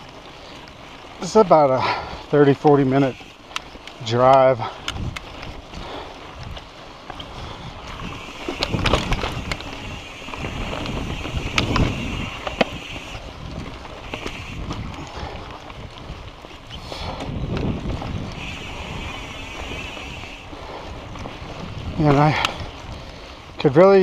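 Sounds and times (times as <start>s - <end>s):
bike knocking and rattling: 0.0s - 24.0s
bike tyres on rough trail: 0.0s - 24.0s
wind on microphone: 4.6s - 23.6s.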